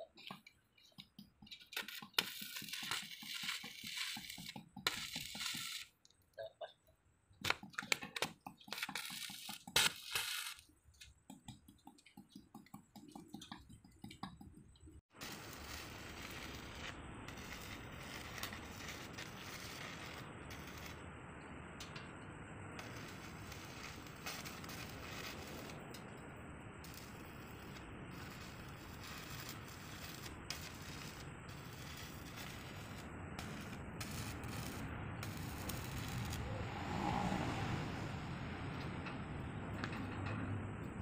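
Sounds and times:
welding arc crackling: 0.2s - 6.2s, 7.4s - 11.1s, 15.1s - 21.1s, 22.7s - 36.6s.

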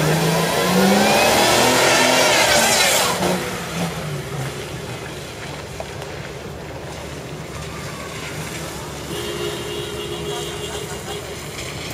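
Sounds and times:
suv engine revving hard: 0.0s - 4.6s.

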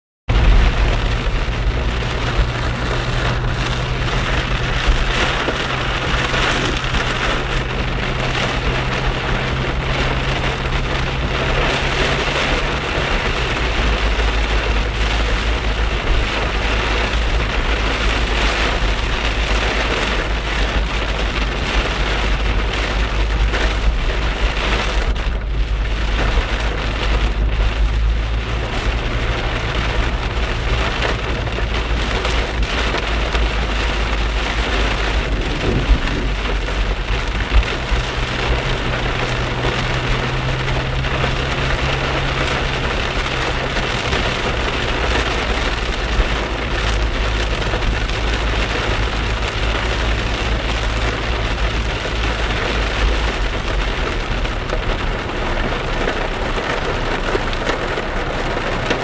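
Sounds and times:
engine and road noise hum: 0.3s - 59.0s
heavy rain on car roof: 0.3s - 59.0s.

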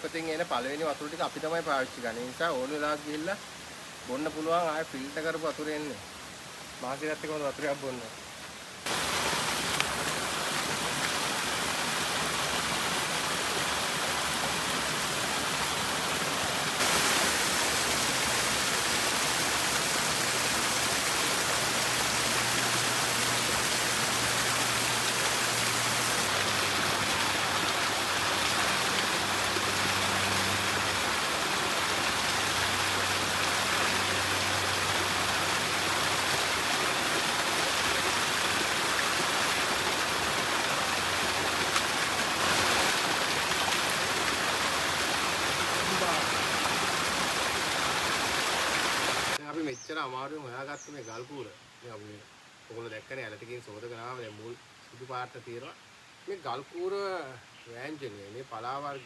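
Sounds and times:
water splashing over rocks: 8.8s - 49.4s.

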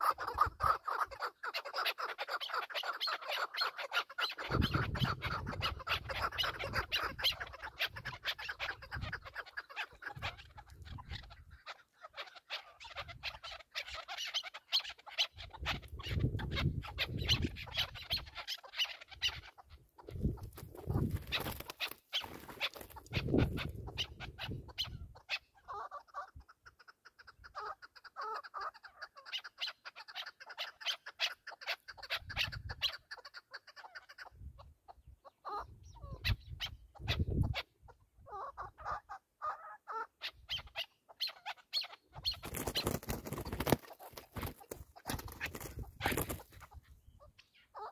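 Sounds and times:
wind gusts on microphone: 4.5s - 9.2s, 15.5s - 18.3s, 20.0s - 21.6s, 23.0s - 25.2s, 35.7s - 37.6s, 45.1s - 47.0s.

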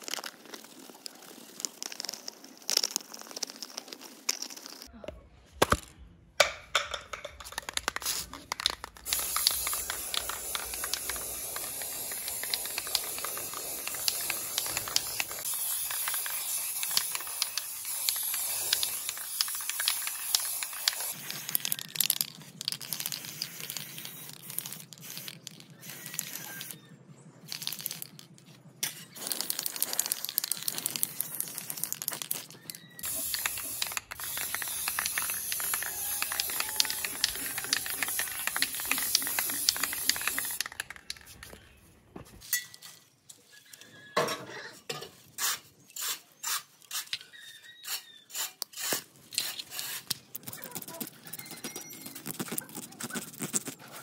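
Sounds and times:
aerosol spray can hissing: 7.9s - 21.6s, 33.0s - 40.8s.

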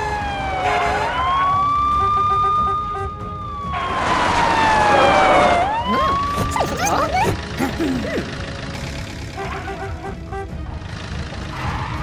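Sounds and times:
police siren wailing: 0.0s - 7.4s.

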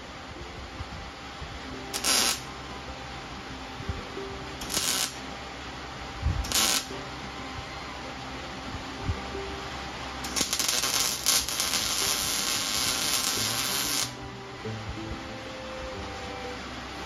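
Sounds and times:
welding arc crackling: 1.9s - 2.5s, 4.6s - 5.2s, 6.4s - 6.9s, 10.2s - 14.2s.

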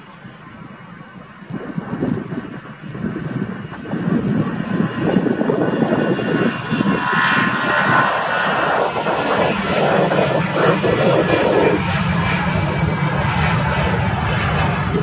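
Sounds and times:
jet roar with whine: 0.0s - 15.0s.

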